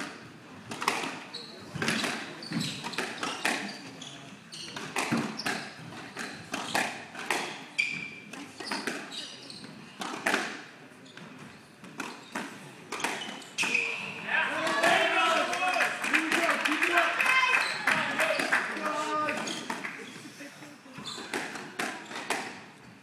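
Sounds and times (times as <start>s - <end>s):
sneakers squeaking on hardwood: 0.9s - 10.4s, 11.0s - 15.0s, 17.5s - 20.2s, 20.9s - 23.0s
squash ball hits: 4.8s - 7.6s.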